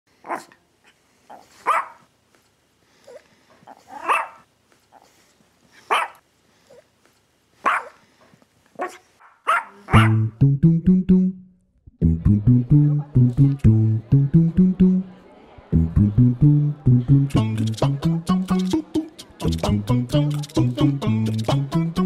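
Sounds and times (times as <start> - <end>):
dog barking: 0.3 - 0.6, 1.6 - 2.1, 3.7 - 4.4, 5.9 - 6.2, 7.6 - 8.0, 8.8 - 10.2
dog yipping: 1.3 - 2.0, 3.1 - 5.1, 5.9 - 6.8, 7.6 - 8.0, 8.8 - 10.2
guitar and bass music: 10.0 - 15.1, 15.7 - 22.0.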